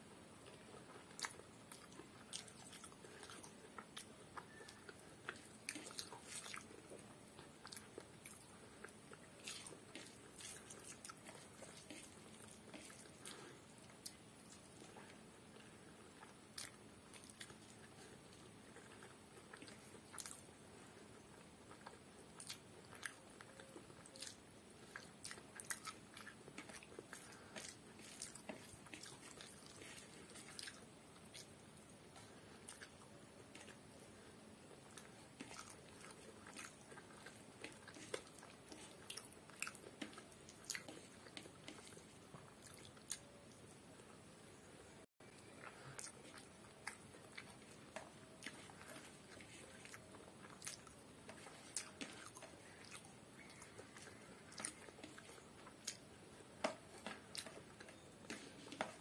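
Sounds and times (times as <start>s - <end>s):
chewing and mouth sounds: 0.4s - 43.9s, 45.2s - 59.0s.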